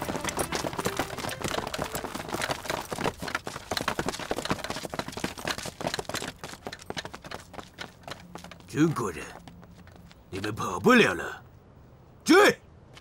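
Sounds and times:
footsteps running on hard ground: 0:00.0 - 0:10.3.

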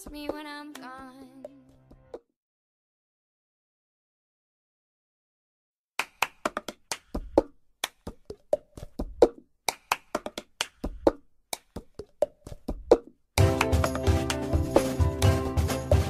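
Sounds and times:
hand claps: 0:06.0 - 0:14.5
backing music: 0:13.4 - 0:16.0.

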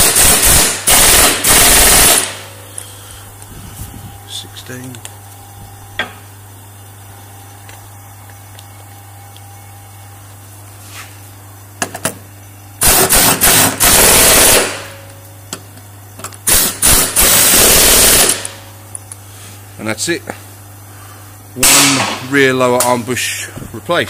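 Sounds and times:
impact wrench hammering: 0:00.0 - 0:02.5.

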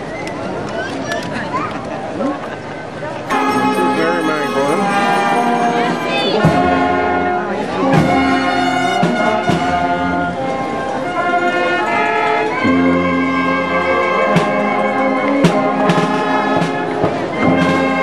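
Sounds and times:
brass band playing a march: 0:03.3 - 0:18.0.

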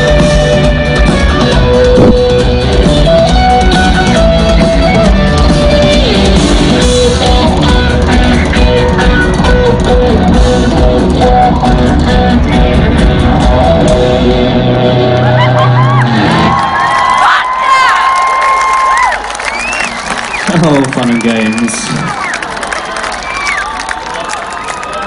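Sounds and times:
drum kit: 0:00.0 - 0:15.4
electric guitar melody: 0:00.0 - 0:16.4
live rock band playing: 0:00.0 - 0:16.8.

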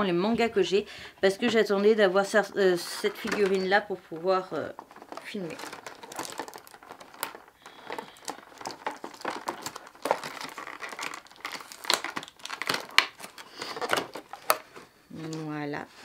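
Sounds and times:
packaging crinkling and snapping: 0:03.0 - 0:15.4.

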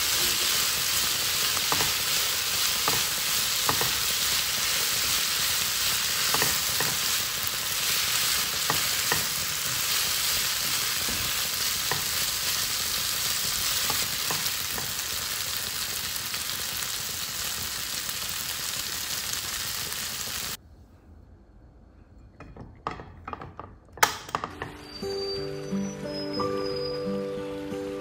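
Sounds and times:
vegetables sizzling in a pan: 0:00.0 - 0:20.6
spatula scraping pan: 0:00.2 - 0:12.6.

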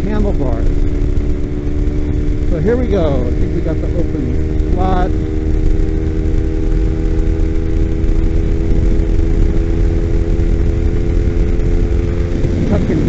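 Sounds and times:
motorcycle engine running: 0:00.0 - 0:13.0
wind rushing on microphone: 0:00.0 - 0:13.0.

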